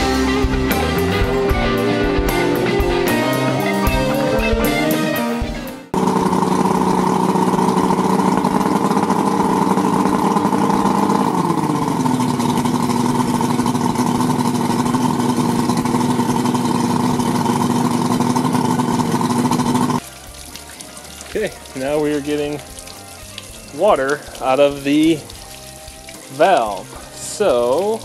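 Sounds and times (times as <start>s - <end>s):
outboard engine running: 0.0s - 28.0s
cooling water splashing: 6.0s - 28.0s.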